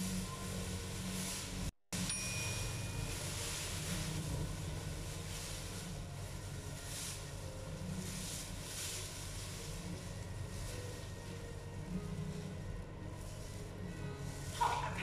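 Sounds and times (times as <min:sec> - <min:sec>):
plastic cape rustling: 0:00.0 - 0:15.0
steady low hum: 0:00.0 - 0:15.0
bright ding: 0:02.0 - 0:03.3.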